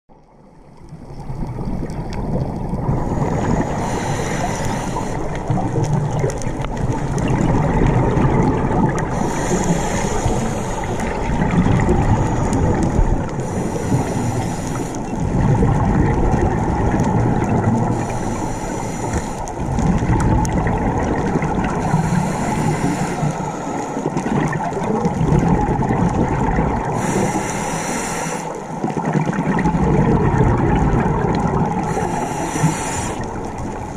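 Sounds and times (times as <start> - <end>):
bubbling exhales: 1.3 - 33.9
hissing regulator inhale: 3.0 - 5.5, 9.1 - 11.4, 12.0 - 15.2, 17.9 - 19.6, 21.7 - 24.2, 26.9 - 28.8, 31.8 - 33.5.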